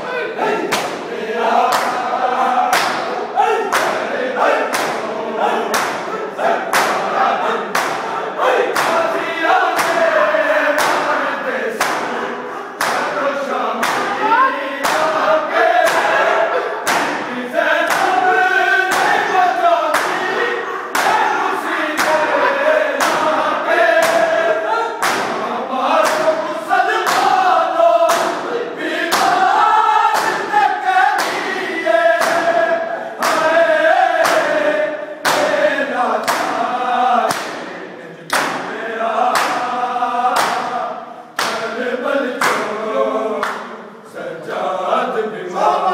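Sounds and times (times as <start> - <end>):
men chanting in unison: 0.0 - 45.9
hands slapping chests: 0.6 - 13.2, 13.8 - 18.3, 18.9 - 21.3, 21.9 - 22.3, 23.0 - 23.4, 24.0 - 26.4, 27.0 - 28.5, 29.1 - 29.5, 30.1 - 33.6, 34.2 - 34.6, 35.2 - 35.6, 36.2 - 39.7, 40.3 - 40.8, 41.4 - 41.7, 42.3 - 42.7, 43.4 - 43.7.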